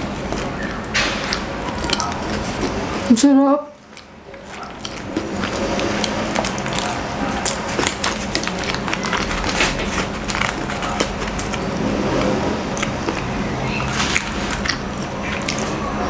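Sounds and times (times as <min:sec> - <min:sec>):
chewing: 0:00.0 - 0:03.1, 0:03.8 - 0:16.0
paper wrapper crackling: 0:03.8 - 0:16.0.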